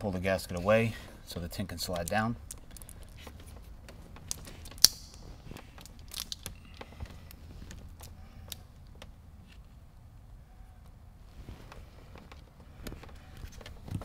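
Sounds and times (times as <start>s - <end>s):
film crinkling on glass: 1.8s - 8.7s.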